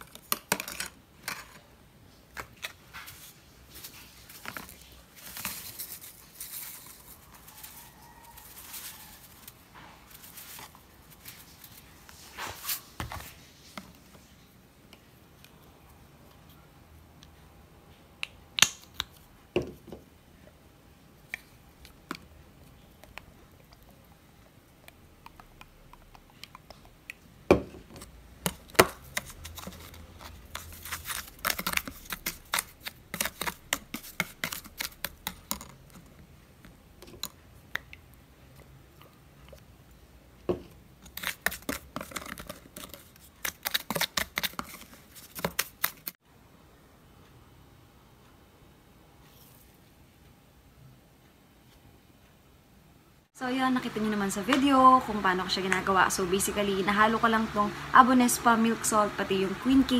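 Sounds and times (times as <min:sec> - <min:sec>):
plastic spoon scraping salt in tub: 0:29.0 - 0:35.4, 0:41.1 - 0:46.1.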